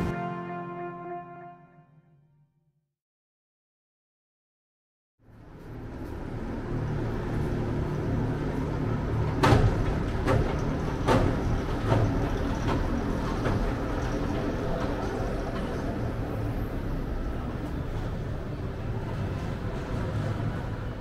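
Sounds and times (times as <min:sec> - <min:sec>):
roller coaster rumble on track: 0:05.3 - 0:21.0
track clacks: 0:07.4 - 0:21.0.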